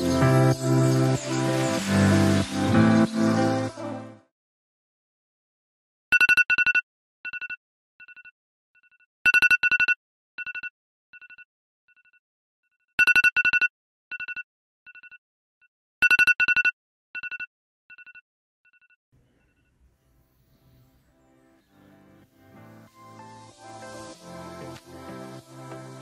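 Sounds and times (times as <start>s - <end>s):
smartphone alarm beeping: 16.0s - 18.2s.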